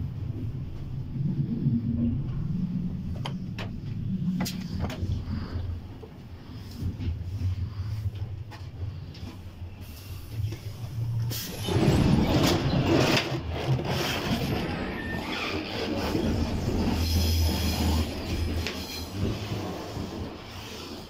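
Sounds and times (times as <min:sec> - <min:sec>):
moving train rumble with knocks: 0:00.0 - 0:21.0
automatic train door opening: 0:11.3 - 0:13.4.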